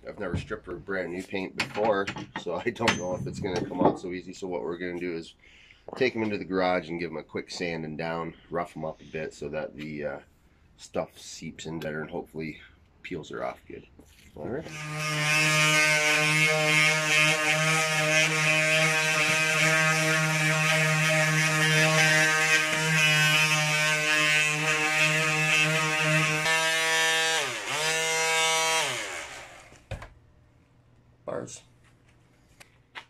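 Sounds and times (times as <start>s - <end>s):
electric sander buzzing on metal: 14.7s - 29.8s.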